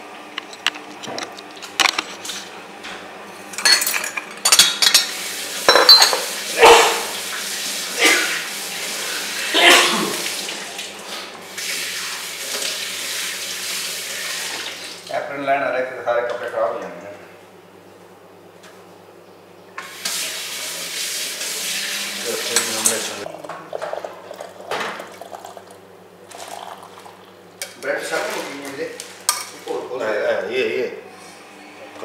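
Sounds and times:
pots and crockery clattering: 3.6s - 7.0s
running water: 5.0s - 15.2s, 19.8s - 27.3s.

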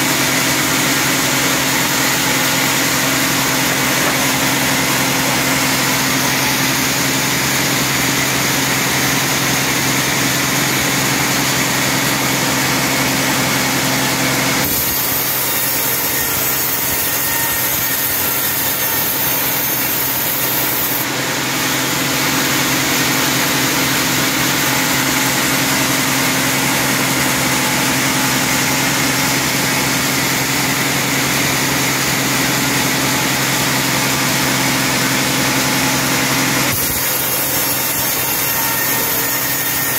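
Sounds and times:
band saw cutting wood: 0.0s - 39.9s.

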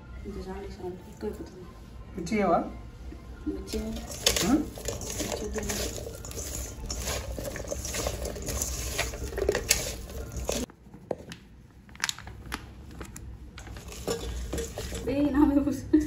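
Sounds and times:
hand squeezing onions in bowl: 3.6s - 11.2s, 13.6s - 15.1s.

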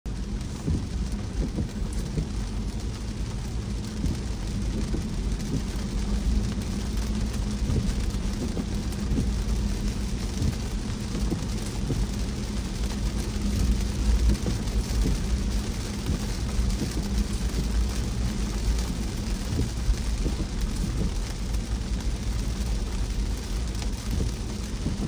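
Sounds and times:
car road rumble: 0.0s - 25.0s
rain hiss: 0.1s - 25.0s.

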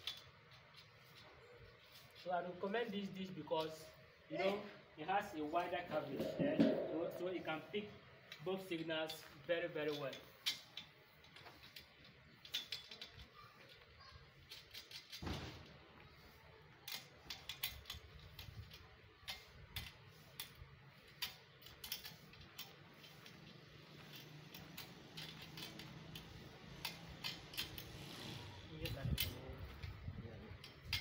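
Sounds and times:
small metallic clicks and taps: 16.8s - 28.0s, 30.6s - 31.0s.

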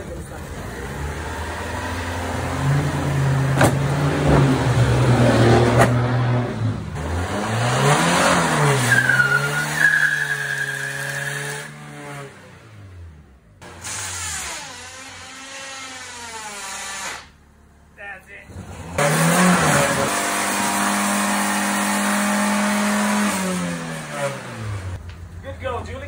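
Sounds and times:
car engine revving high: 0.6s - 15.8s, 18.5s - 25.0s
tyre squealing: 8.6s - 11.6s.

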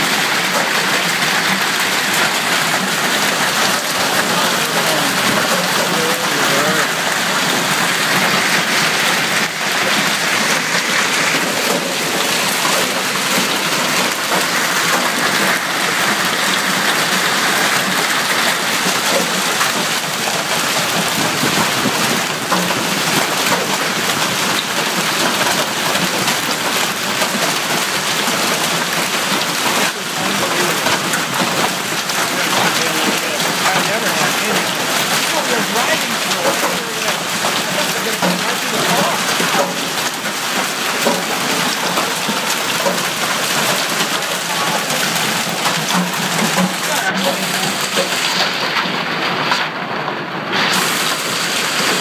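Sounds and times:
hail and heavy rain hissing: 0.0s - 52.0s
hailstones ticking on cars: 0.0s - 52.0s.

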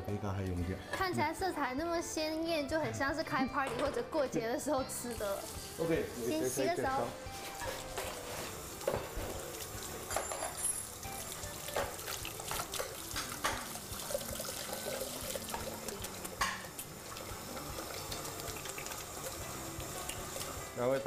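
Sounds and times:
tap water running into sink: 7.7s - 21.0s.

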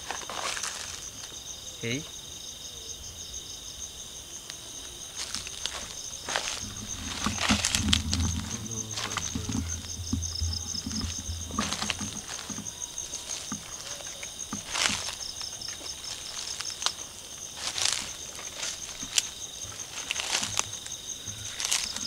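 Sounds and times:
night insects trilling: 0.0s - 22.0s
footsteps on dry leaves: 5.1s - 20.8s
low rumble: 6.3s - 13.2s.

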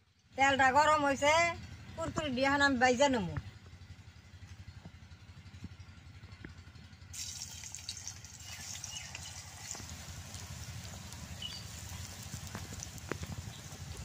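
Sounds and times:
deep-frying sizzle with pops: 7.1s - 14.0s.

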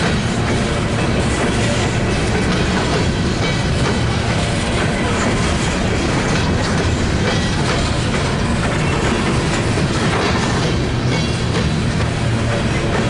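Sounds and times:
train wheels on rails: 0.0s - 13.0s.

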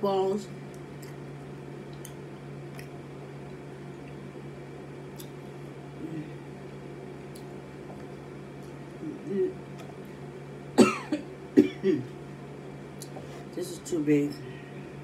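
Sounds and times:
steady low hum: 0.0s - 15.0s
wet chewing sounds: 0.7s - 4.3s.

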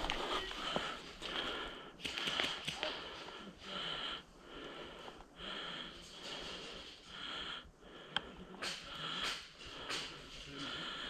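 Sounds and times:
person breathing hard: 0.0s - 11.0s.

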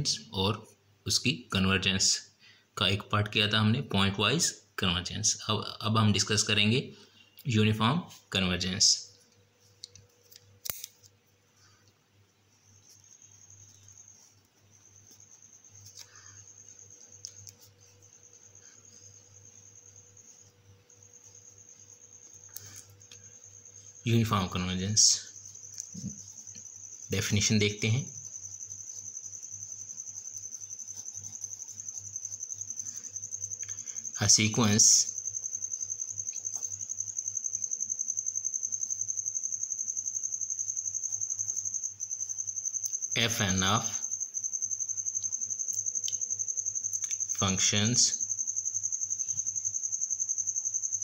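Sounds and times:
cricket chirping: 0.0s - 51.0s
faint low hum: 0.0s - 51.0s
sharp click: 10.6s - 11.1s
pen strokes on paper: 28.3s - 33.1s.

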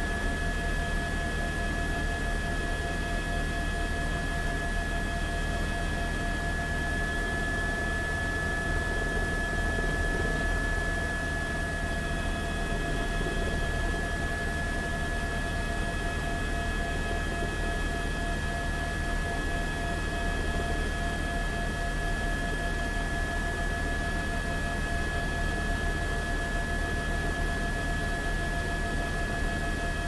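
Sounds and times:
high-pitched whine: 6.3s - 16.6s.

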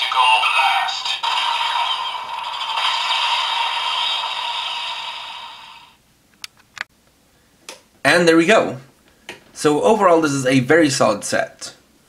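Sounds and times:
electronic toy blaster sound: 0.1s - 6.0s.

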